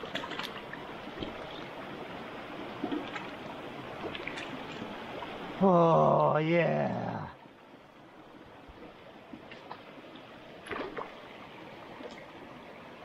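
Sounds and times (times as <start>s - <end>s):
faint clicks and splashes: 0.0s - 1.8s, 2.7s - 5.4s, 8.6s - 12.4s
stream running over rocks: 0.0s - 13.0s.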